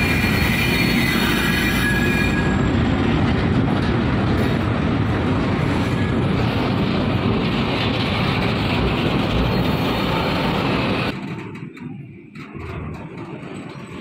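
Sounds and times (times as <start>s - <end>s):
diesel locomotive engine rumble: 0.0s - 14.0s
train wheels on rails: 0.0s - 14.0s.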